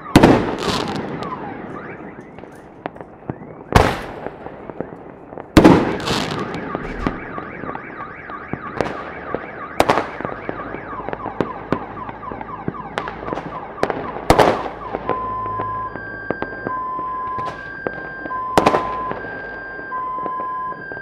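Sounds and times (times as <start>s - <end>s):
car alarm warbling: 0.0s - 4.2s, 5.7s - 21.0s
fireworks crackling: 0.0s - 8.0s
fireworks bangs: 0.0s - 21.0s
alternating two-tone beeps: 6.6s - 8.7s, 15.1s - 17.4s, 18.1s - 19.2s.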